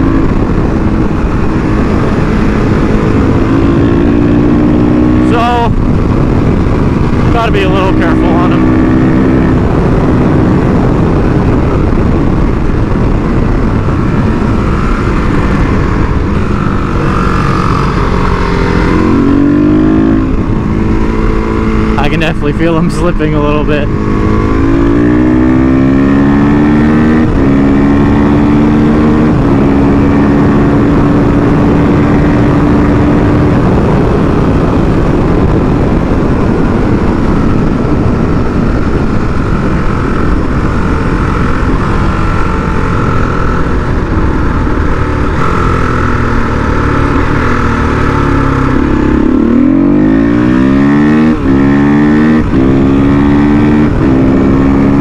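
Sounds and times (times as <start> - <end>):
heavy wind noise: 0.0 - 55.0
motorcycle engine revving: 0.0 - 55.0.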